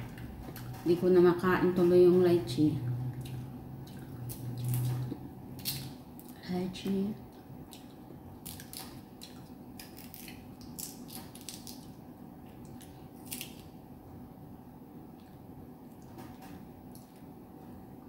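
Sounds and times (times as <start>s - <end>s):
faint hum: 0.0s - 18.0s
fruit shell cracking: 5.6s - 6.4s, 8.4s - 12.0s, 12.7s - 13.8s.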